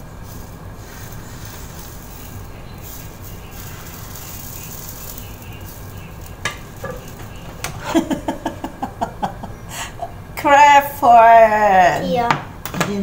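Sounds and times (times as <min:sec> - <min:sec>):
batter sizzling in a frying pan: 0:00.0 - 0:09.4
utensils clattering on pan: 0:00.4 - 0:09.5.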